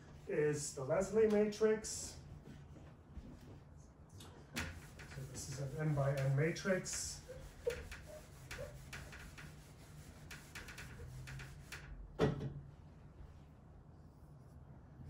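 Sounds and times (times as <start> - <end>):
marker drawing on whiteboard: 4.5 - 12.0.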